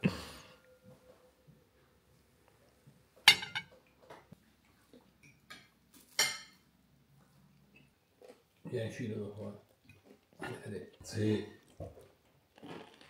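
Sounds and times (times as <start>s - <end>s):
tableware clinking: 3.2s - 3.8s, 5.2s - 6.6s.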